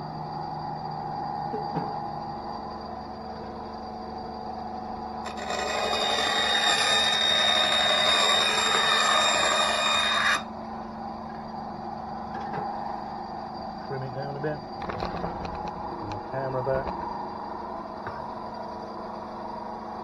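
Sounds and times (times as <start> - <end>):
bandsaw humming: 5.2 - 10.5
saw blade cutting plywood whine: 5.2 - 10.5.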